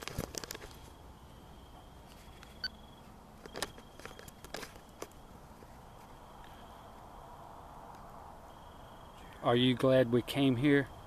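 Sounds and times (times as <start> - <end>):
clicks of devices being handled: 3.4 - 5.2.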